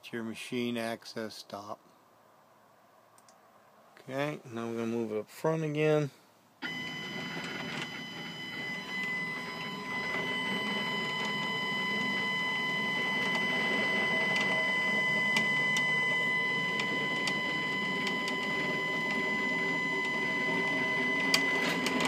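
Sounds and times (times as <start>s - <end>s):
stepper motor whine: 6.6s - 22.0s.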